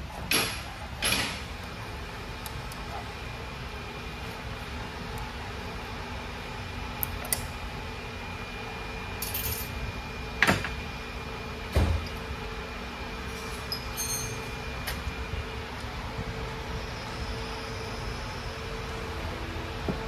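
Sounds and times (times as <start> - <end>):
steady shop hum: 0.0 - 20.0
metallic jangle: 9.2 - 9.7.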